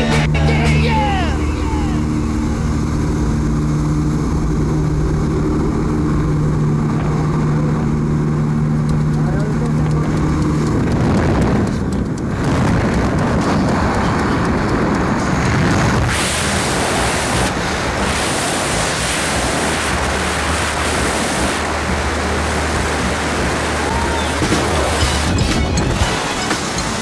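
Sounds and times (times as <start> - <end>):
aircraft engine drone: 0.0 - 27.0
wind blowing on microphone: 9.8 - 21.7.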